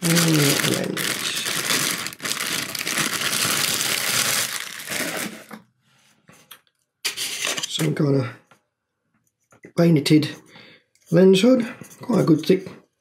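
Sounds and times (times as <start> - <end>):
packaging rustling: 0.0 - 5.6.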